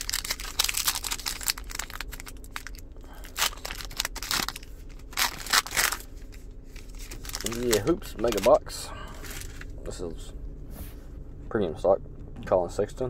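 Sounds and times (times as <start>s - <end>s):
card pack wrapper crinkling and tearing: 0.0s - 8.6s.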